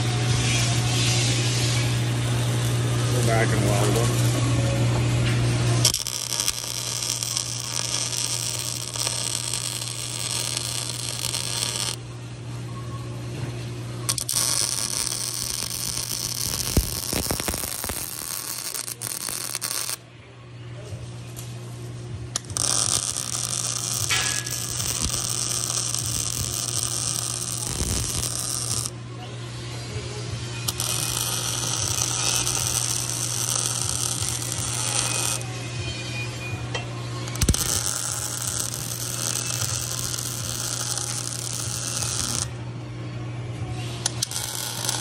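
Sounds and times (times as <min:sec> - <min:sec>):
steady hum: 0:00.0 - 0:45.0
welding arc crackling: 0:00.9 - 0:04.7, 0:05.6 - 0:12.0, 0:14.1 - 0:20.0, 0:22.4 - 0:28.9, 0:30.6 - 0:35.5, 0:37.3 - 0:42.6, 0:44.0 - 0:45.0.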